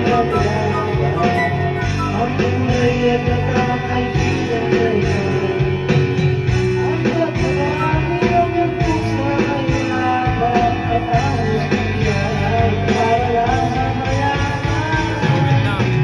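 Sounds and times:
backing track with guitar: 0:00.0 - 0:16.0
man singing karaoke: 0:00.0 - 0:16.0.

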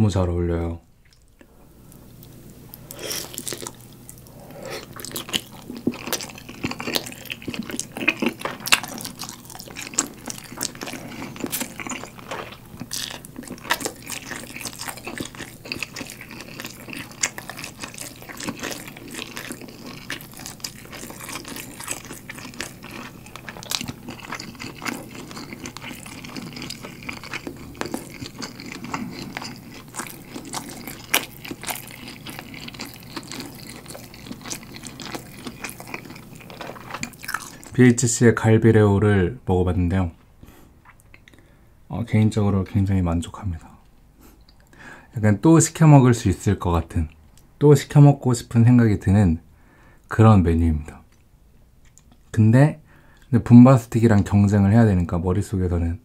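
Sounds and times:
chewing and mouth smacks: 0:01.0 - 0:37.7, 0:40.8 - 0:41.4, 0:51.1 - 0:52.3.

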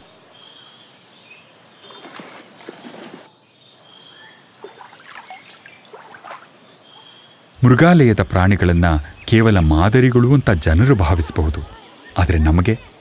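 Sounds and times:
otters splashing in water: 0:01.9 - 0:03.3, 0:04.5 - 0:06.6.

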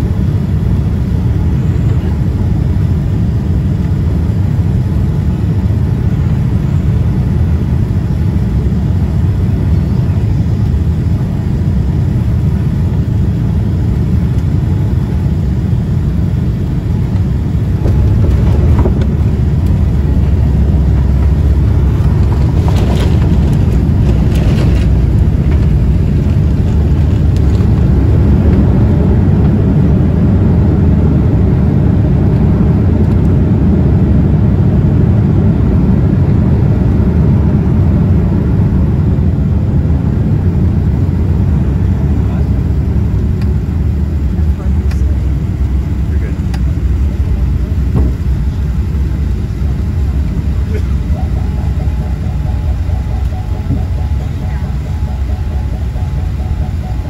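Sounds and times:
jet engine rumble and rushing air: 0:00.0 - 0:57.0
knocks and rattles: 0:20.9 - 0:27.8.

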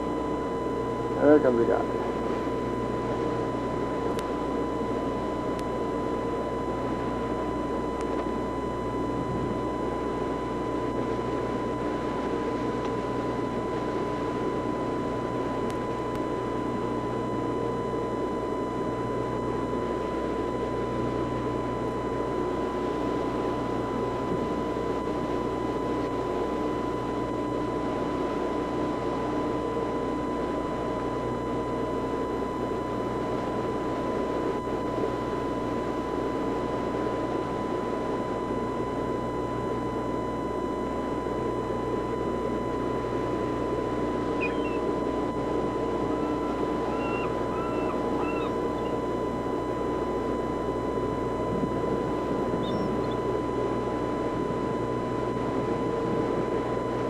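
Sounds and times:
boat engine rumble: 0:09.0 - 0:18.0, 0:41.0 - 0:57.0
thin high tone: 0:45.7 - 0:49.0.

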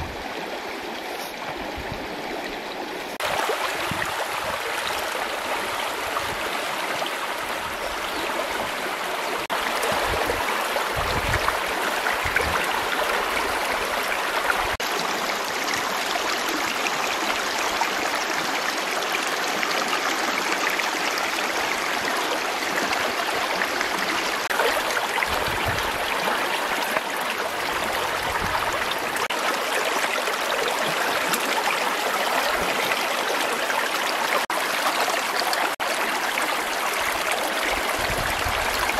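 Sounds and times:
river water flowing over stones: 0:00.0 - 0:38.9.

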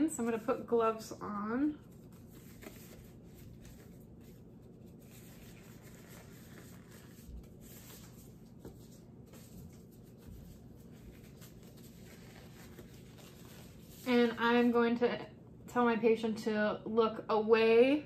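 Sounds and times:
glove material rustling: 0:01.8 - 0:14.4.

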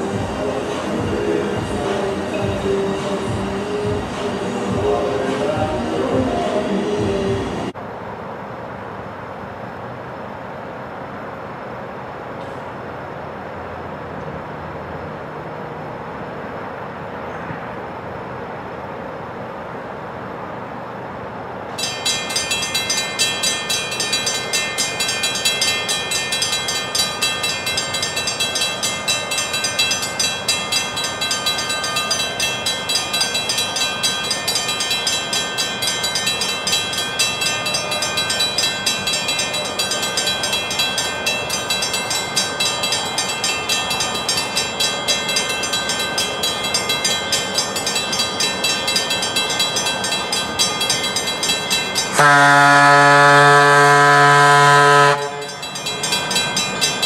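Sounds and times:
railroad crossing bell ringing: 0:00.0 - 0:07.4, 0:21.7 - 0:57.0.

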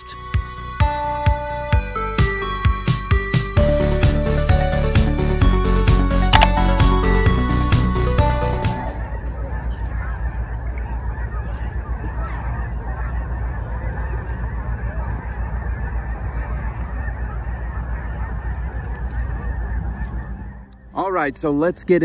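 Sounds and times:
geese honking in flight: 0:00.0 - 0:21.8
steady low rumble: 0:09.0 - 0:22.0.

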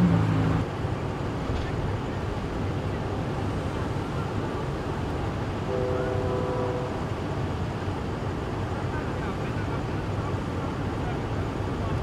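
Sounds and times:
low rumble of traffic: 0:00.0 - 0:12.0
distant horn: 0:05.7 - 0:07.1.

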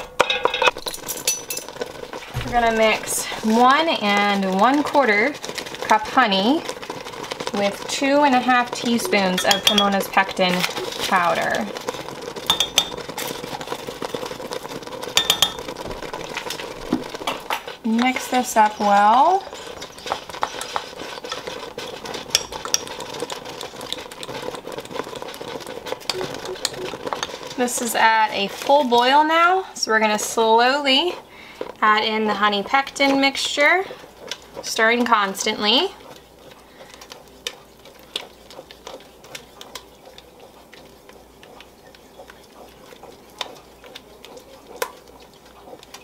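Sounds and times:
spoon stirring jam in a pot: 0:00.0 - 0:46.0
utensil clinking on glass: 0:09.0 - 0:10.1.

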